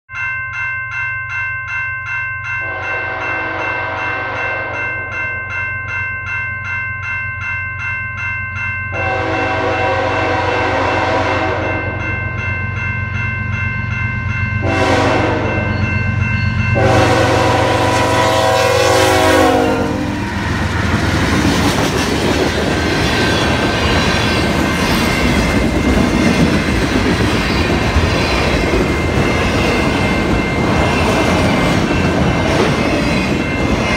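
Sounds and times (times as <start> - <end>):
railroad crossing bell ringing: 0.1 - 33.9
locomotive air horn: 2.6 - 4.8, 9.0 - 11.9, 14.6 - 15.7, 16.8 - 20.6
train wheels clattering on rail: 20.2 - 33.9.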